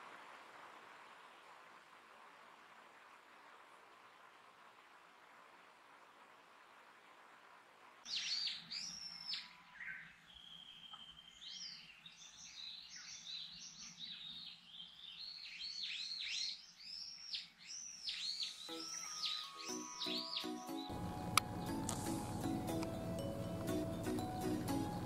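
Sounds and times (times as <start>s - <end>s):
small birds singing: 8.0s - 25.0s.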